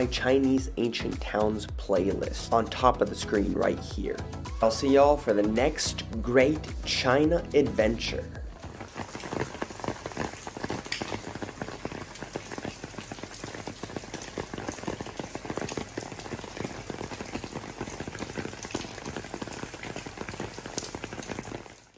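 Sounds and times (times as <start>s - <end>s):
rain on stone paving: 8.4s - 21.9s.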